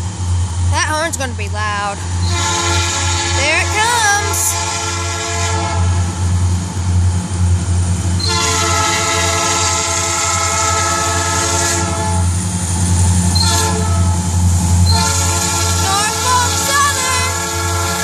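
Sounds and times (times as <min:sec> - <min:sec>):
locomotive low rumble: 0:00.0 - 0:18.0
locomotive air horn blasts: 0:02.2 - 0:06.0, 0:08.2 - 0:12.3, 0:13.4 - 0:14.2, 0:14.8 - 0:18.0.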